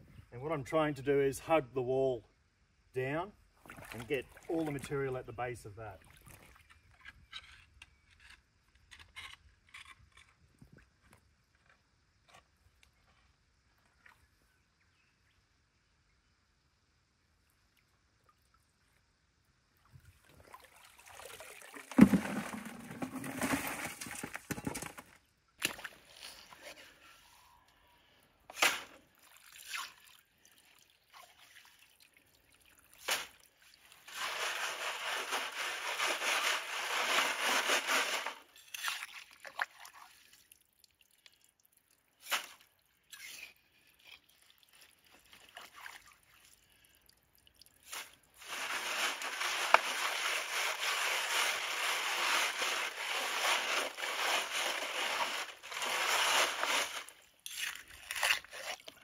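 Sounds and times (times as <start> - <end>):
water sloshing in tub: 3.6 - 4.9, 44.6 - 46.5
gravel dropping into sieve: 21.3 - 25.1, 34.0 - 38.5, 47.9 - 57.2.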